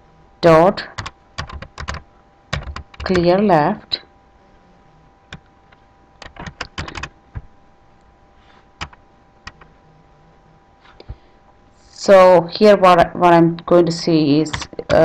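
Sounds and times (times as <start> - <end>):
keyboard keystrokes: 1.0 - 3.4, 6.2 - 7.5, 8.8 - 9.7.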